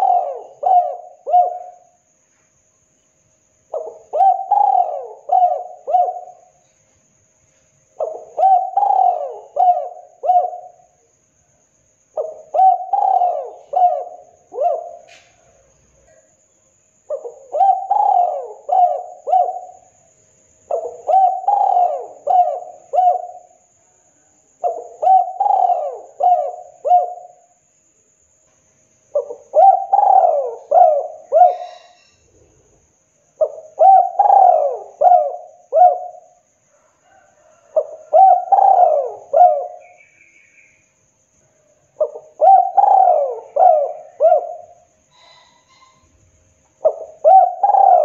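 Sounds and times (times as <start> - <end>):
dove cooing: 0.0 - 2.0, 3.7 - 6.6, 8.0 - 11.0, 12.2 - 16.2, 17.1 - 19.9, 20.7 - 23.6, 24.6 - 27.4, 29.1 - 32.2, 33.4 - 40.0, 42.0 - 46.1, 46.8 - 48.0.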